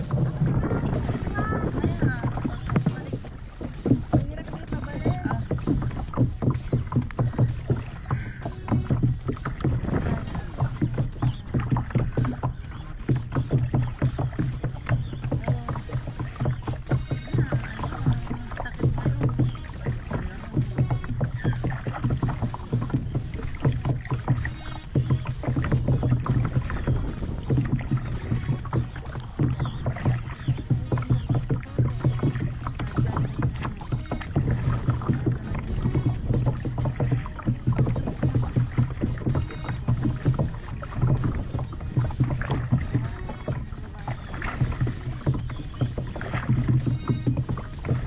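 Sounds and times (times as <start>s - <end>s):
low thuds against kayak hull: 0.0s - 48.0s
water splashing from paddling: 0.0s - 48.0s.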